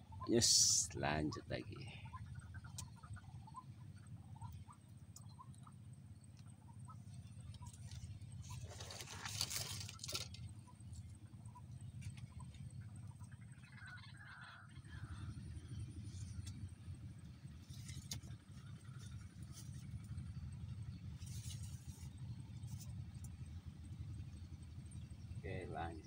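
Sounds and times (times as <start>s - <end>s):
low steady rumble: 0.0s - 26.0s
brief rustling: 8.4s - 10.4s.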